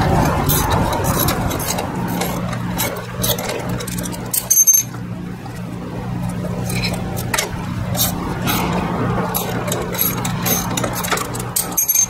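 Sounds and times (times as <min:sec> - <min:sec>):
steady low hum: 0:00.0 - 0:12.0
metal clink on tile: 0:11.6 - 0:12.0.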